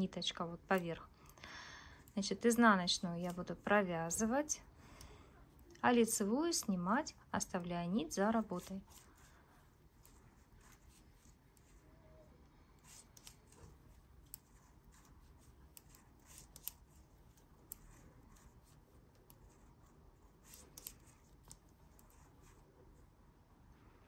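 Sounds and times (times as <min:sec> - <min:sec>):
knitting needles clicking: 0:12.8 - 0:19.8, 0:20.4 - 0:22.6.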